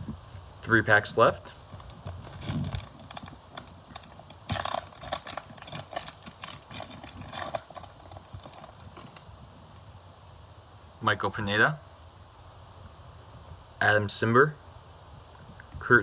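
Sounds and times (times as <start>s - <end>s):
wrapper being torn open: 1.8s - 9.2s.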